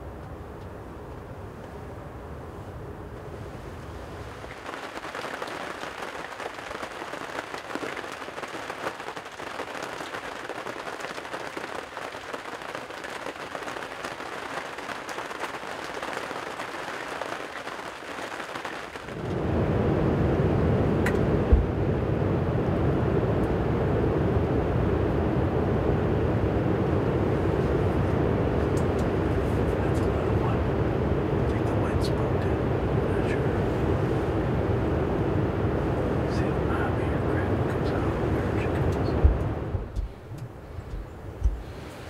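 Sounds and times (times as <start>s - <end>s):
rain pattering: 3.9s - 19.6s, 26.6s - 42.0s
steady low rumble: 19.0s - 41.9s.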